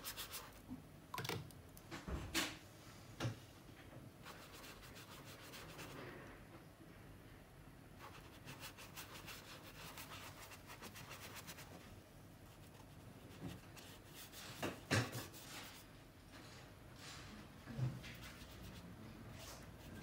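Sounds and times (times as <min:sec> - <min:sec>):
paintbrush scratching on paper: 0:04.2 - 0:06.0, 0:08.0 - 0:11.8, 0:18.1 - 0:20.0.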